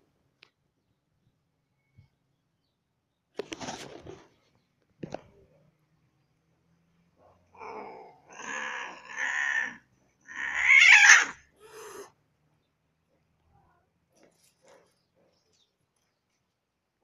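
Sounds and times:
cat yowling: 7.6 - 12.1.

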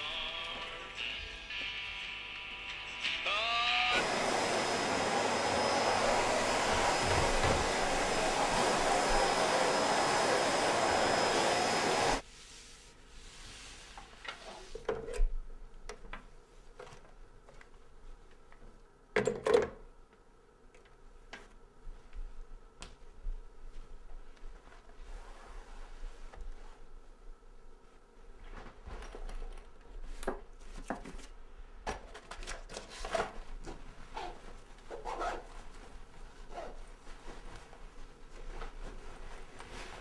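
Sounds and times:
vacuum cleaner whining: 3.8 - 12.2
handling and wiping sounds: 4.1 - 14.9, 21.4 - 27.2, 32.8 - 40.0.

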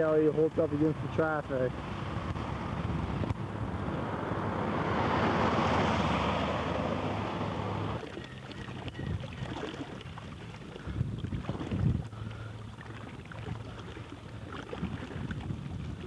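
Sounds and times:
vehicle passing: 1.6 - 8.1
wind noise on microphone: 1.7 - 12.5, 14.2 - 16.0.

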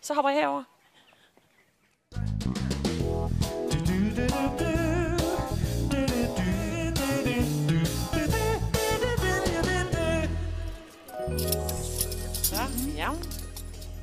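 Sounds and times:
song with guitar and singing: 3.7 - 11.1.

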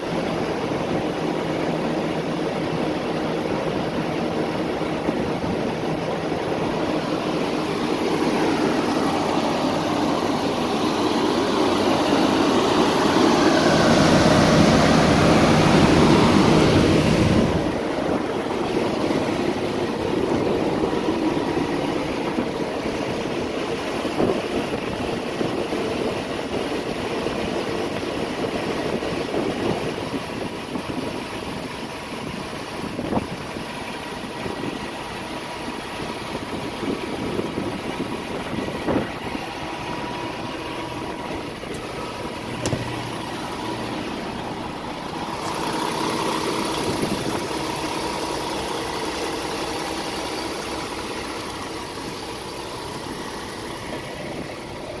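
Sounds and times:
diesel truck engine idling: 0.0 - 55.0.

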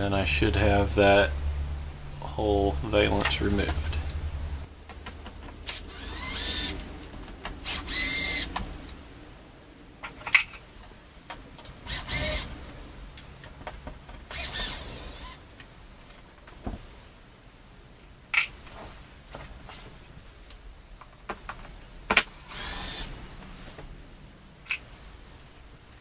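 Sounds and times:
impact driver motor whine: 5.7 - 6.8, 7.6 - 8.6, 11.9 - 12.5, 14.3 - 15.4, 22.3 - 23.1.

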